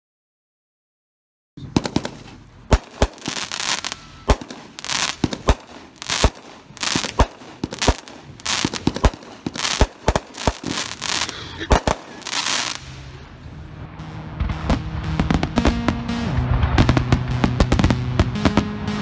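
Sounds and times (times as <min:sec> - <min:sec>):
firework bangs: 0:01.6 - 0:13.4, 0:14.3 - 0:19.0
crackling firework stars: 0:01.6 - 0:19.0.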